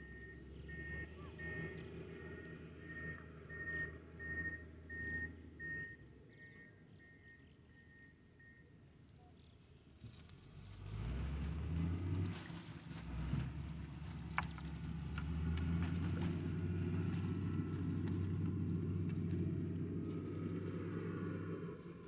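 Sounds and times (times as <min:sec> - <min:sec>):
motor engine rumbling: 0:09.9 - 0:22.0.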